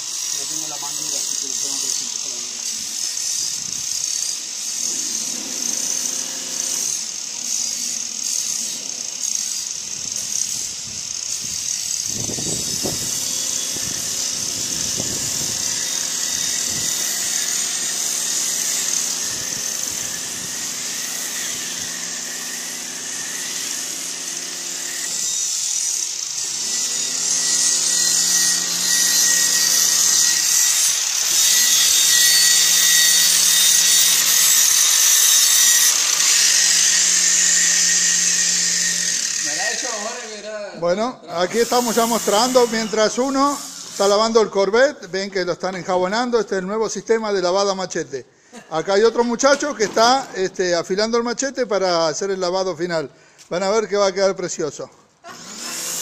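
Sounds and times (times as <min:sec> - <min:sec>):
pressure washer spray hiss: 0:00.0 - 0:24.2, 0:41.4 - 0:44.2
angle grinder grinding steel: 0:00.0 - 0:44.9, 0:54.8 - 0:56.0.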